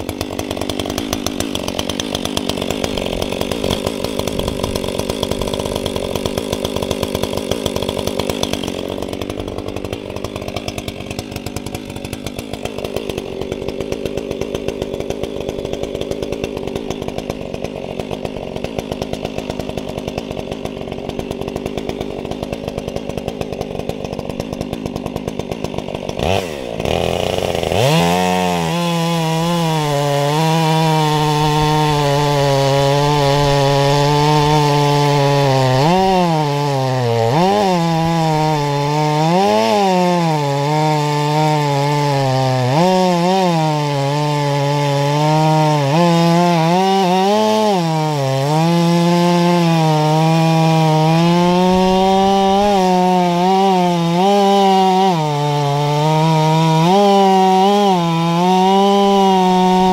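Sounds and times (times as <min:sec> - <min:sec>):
chainsaw cutting log: 0:00.0 - 0:59.9.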